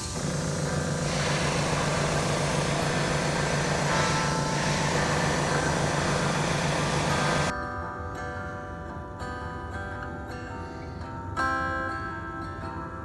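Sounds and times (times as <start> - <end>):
airbrush spraying hiss: 0.0 - 7.5.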